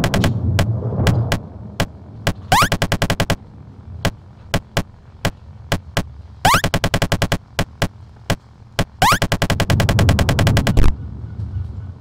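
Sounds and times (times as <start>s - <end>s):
automatic gunfire burst: 0.0s - 1.4s, 8.8s - 10.9s
low steady hum: 0.0s - 12.0s.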